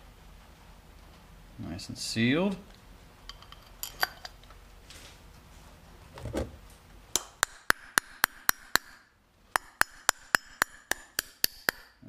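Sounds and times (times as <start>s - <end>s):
small hammer tapping metal: 7.1s - 12.0s.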